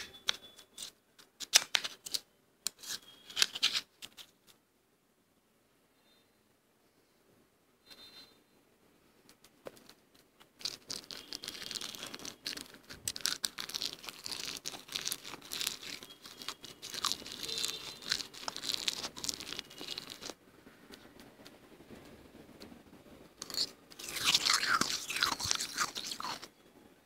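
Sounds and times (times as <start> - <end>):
frost being crunched and chewed: 10.5 - 20.4, 23.4 - 26.5.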